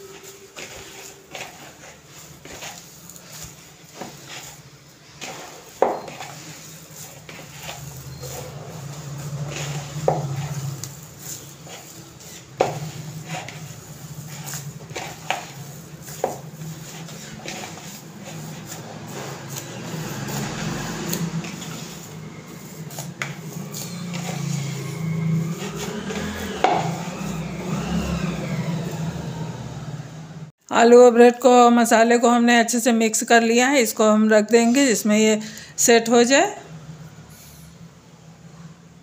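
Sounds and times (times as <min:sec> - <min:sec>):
hands squishing soft mixture: 0:00.0 - 0:29.6.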